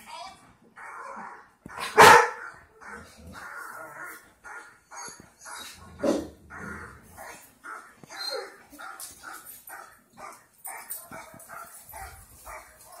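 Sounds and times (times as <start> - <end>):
dog barking: 1.8 - 2.5.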